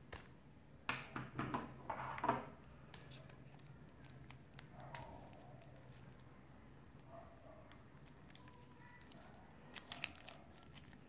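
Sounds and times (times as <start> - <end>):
plastic wrap crinkling: 7.6 - 11.0.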